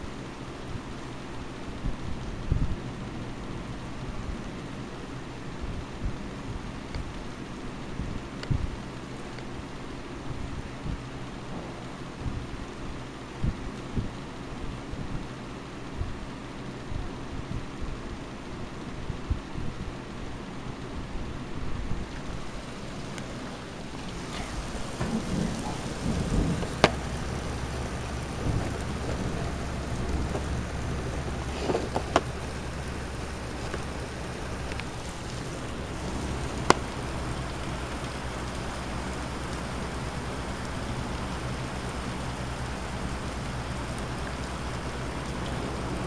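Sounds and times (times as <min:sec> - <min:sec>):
heavy rain falling: 0:00.0 - 0:46.0
thunder rumbling: 0:09.6 - 0:18.0, 0:21.0 - 0:46.0.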